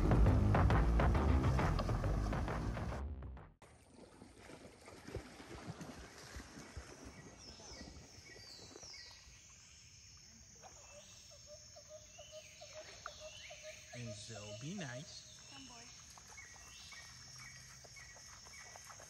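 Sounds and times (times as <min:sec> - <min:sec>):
soft water sounds: 0:03.6 - 0:11.4, 0:12.6 - 0:19.0
high chirping calls: 0:10.8 - 0:18.8.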